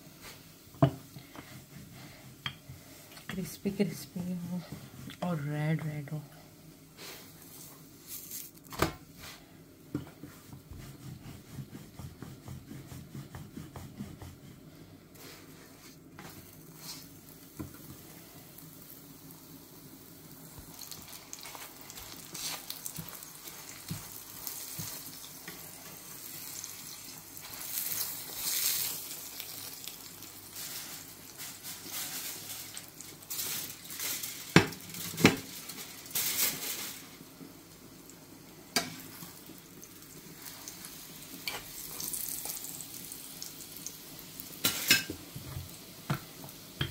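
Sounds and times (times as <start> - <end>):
flatbread sizzling in a pan: 0.0 - 5.3, 6.5 - 46.9
spatula scraping a pan: 10.0 - 17.1.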